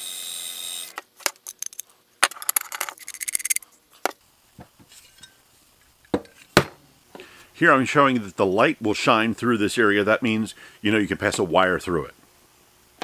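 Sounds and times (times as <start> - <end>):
metal parts clinking: 1.2 - 3.6.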